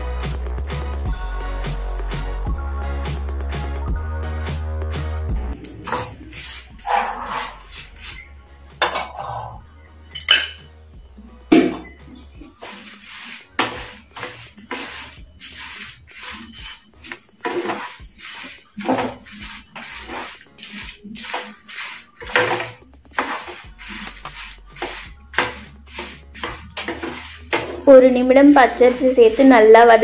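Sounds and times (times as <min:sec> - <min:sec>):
metal spatula scraping frying pan: 0:05.6 - 0:10.7, 0:11.5 - 0:30.0.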